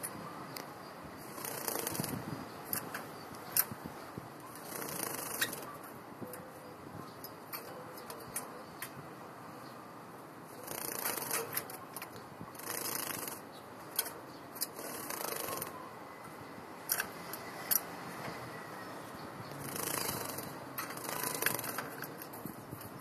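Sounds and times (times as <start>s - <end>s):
sharp clicks: 1.4s - 3.8s, 4.4s - 6.5s, 10.7s - 15.8s, 16.8s - 17.9s, 19.5s - 23.0s.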